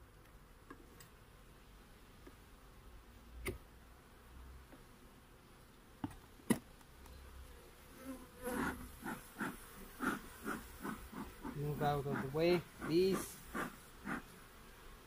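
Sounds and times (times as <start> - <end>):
honeybees buzzing: 6.7 - 15.0
bee smoker bellows puffs: 8.4 - 14.4.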